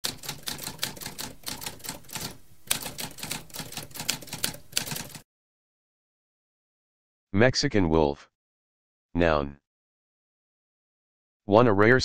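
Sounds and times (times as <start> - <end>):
typewriter keys clacking: 0.0 - 5.2.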